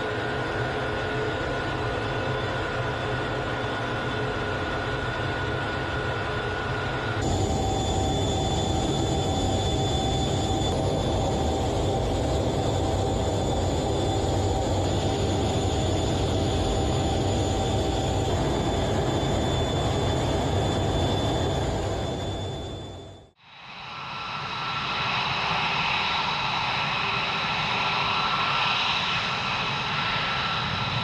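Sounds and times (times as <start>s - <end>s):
jet aircraft rumble and air rush: 0.0s - 31.0s
whining tones: 0.3s - 23.4s.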